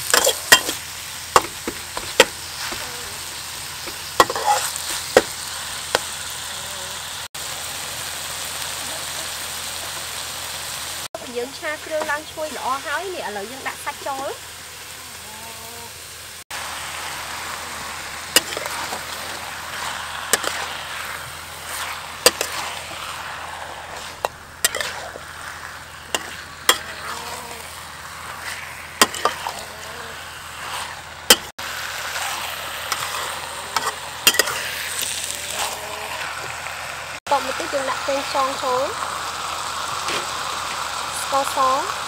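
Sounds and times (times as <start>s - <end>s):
metal spatula scraping pan: 0.0s - 0.8s, 3.8s - 5.3s, 18.1s - 31.5s, 32.1s - 36.3s
chicken sizzling in wok: 0.0s - 42.0s.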